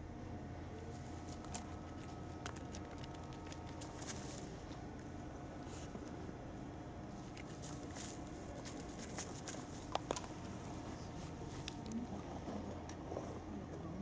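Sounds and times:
rustling in dry grass: 7.3 - 9.9.

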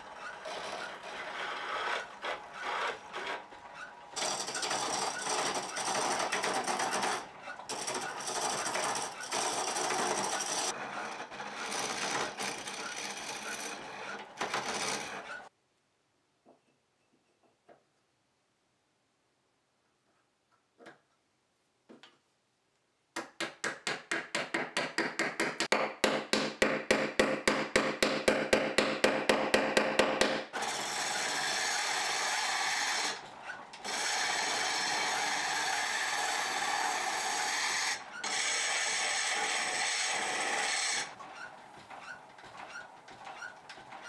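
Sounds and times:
lathe tool scraping wood: 0.0 - 15.5, 30.2 - 44.0.

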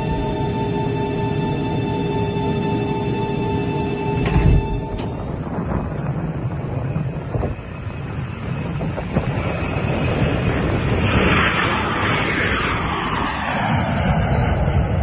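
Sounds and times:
distant jet engines roaring: 0.0 - 15.0
wind buffeting microphone: 4.2 - 15.0.

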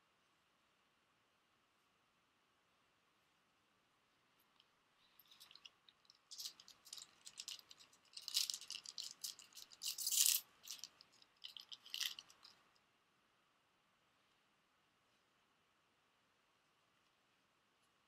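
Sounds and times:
foil wrapper crinkling: 5.2 - 12.6.

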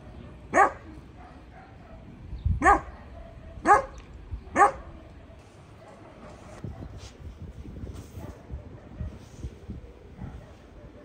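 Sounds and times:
dog barking: 0.2 - 5.1, 5.7 - 7.0, 8.2 - 9.2, 10.2 - 11.0.

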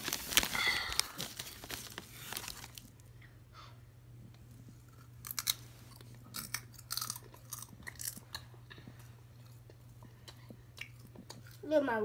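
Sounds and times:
chips crunching and chewing: 4.9 - 11.6.

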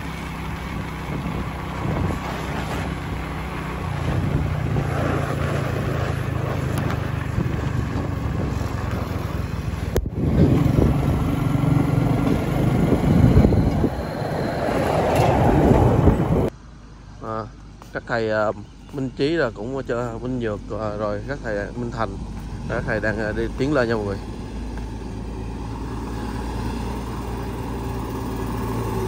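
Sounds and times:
motorbike engine running: 0.0 - 13.9
wind noise on microphone: 0.0 - 16.5
truck passing: 0.0 - 29.0.

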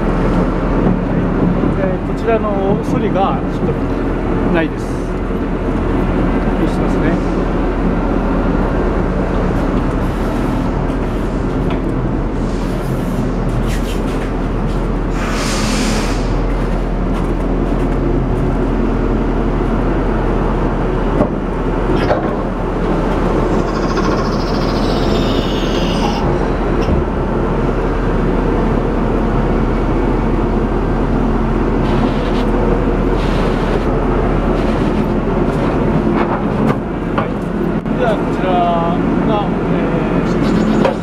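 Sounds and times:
diesel engine running: 0.0 - 41.0.

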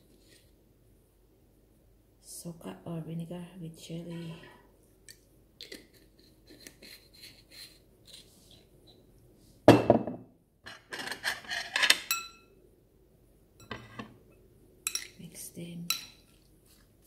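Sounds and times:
knock: 9.7 - 10.2
ceramic dishes and cutlery clinking: 10.7 - 12.5, 13.6 - 14.1, 14.9 - 15.2, 15.9 - 16.3.

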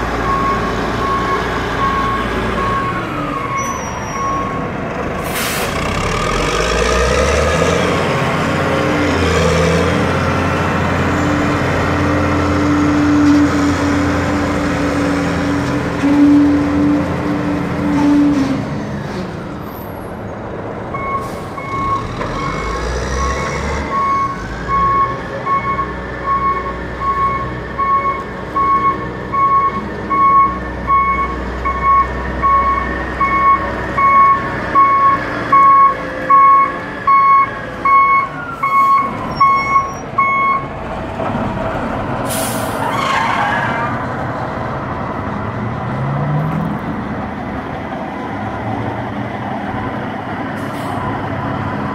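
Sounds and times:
backup alarm beeping: 24.0 - 40.7.

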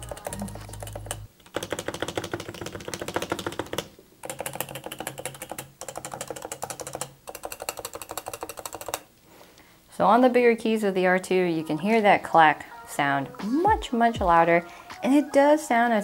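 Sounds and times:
keyboard keys clacking: 0.0 - 9.0.

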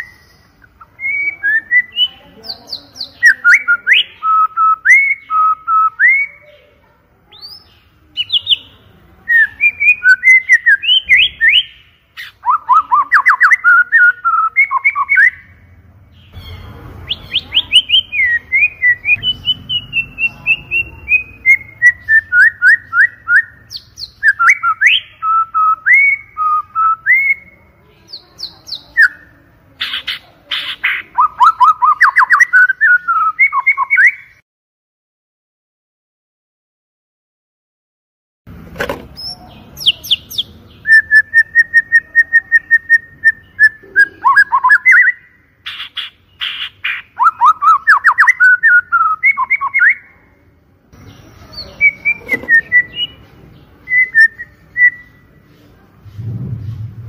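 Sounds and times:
bird singing loudly: 0.0 - 6.6, 9.3 - 34.4, 39.2 - 50.0, 51.0 - 53.2.

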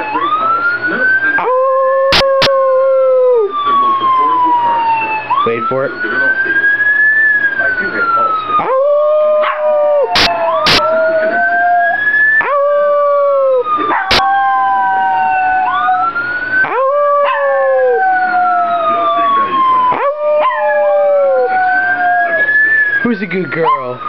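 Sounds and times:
police siren wailing: 0.0 - 24.0
dog howling: 1.3 - 5.2, 8.5 - 22.8, 23.5 - 24.0.

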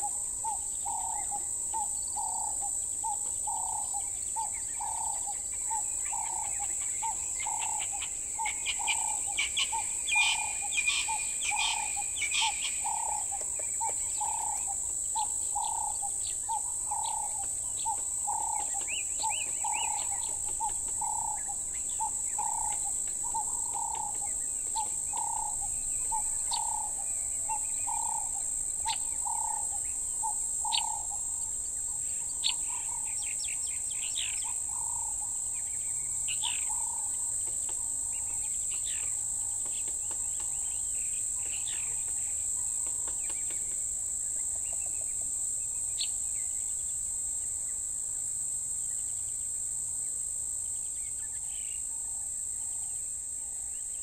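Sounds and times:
high-pitched insect drone: 0.0 - 37.4
birds chirping: 0.0 - 45.2.

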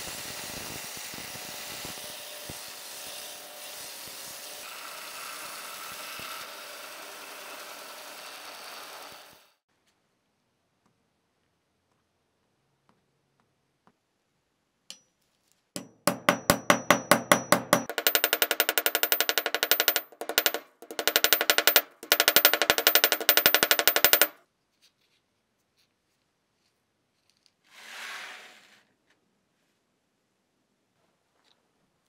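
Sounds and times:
rapid sharp knocks: 15.8 - 24.4.

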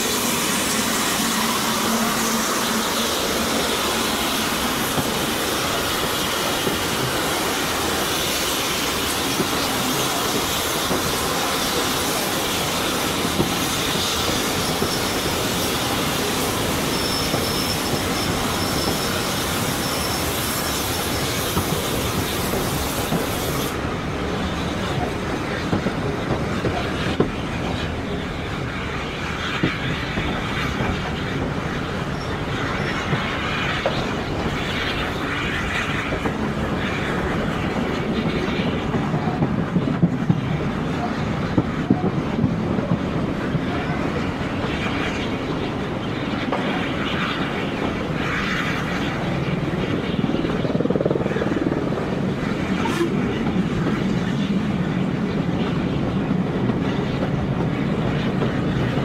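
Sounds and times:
train wheels running on track: 0.0 - 59.0
faint high wheel squeal: 16.7 - 21.4.

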